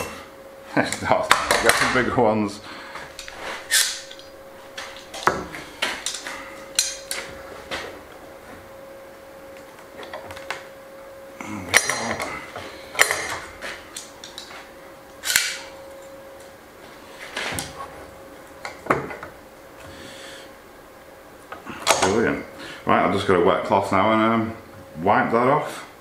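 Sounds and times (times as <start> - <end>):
metal clamps clinking and clanking: 6.0 - 7.3, 11.7 - 12.3.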